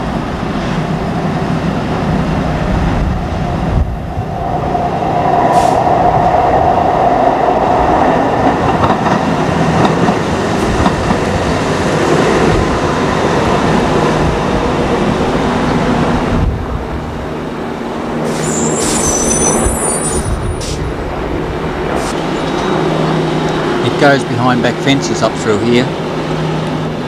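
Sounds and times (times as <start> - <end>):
light rail wheels rumbling: 0.0 - 27.0
wheel squeal on rails: 18.2 - 20.8.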